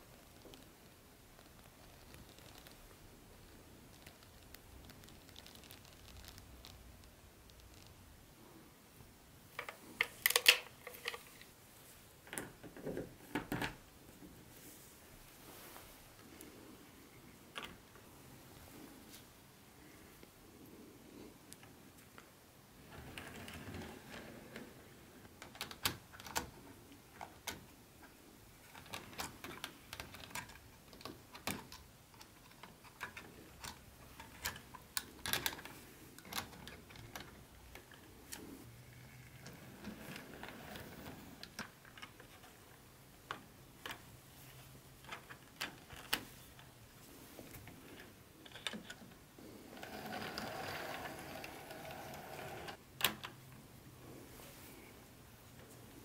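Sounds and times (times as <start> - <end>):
model train motor hum: 49.8 - 52.8.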